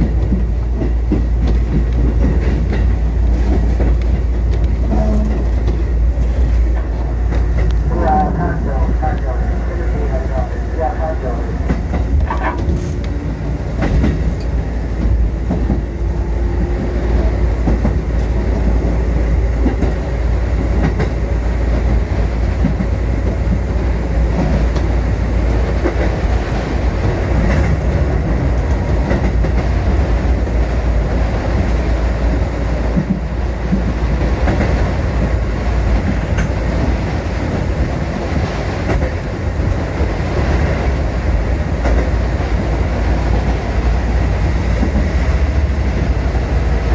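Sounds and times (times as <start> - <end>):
train wheels rumbling: 0.0 - 46.9
wheels clicking over rail joints: 32.9 - 38.0.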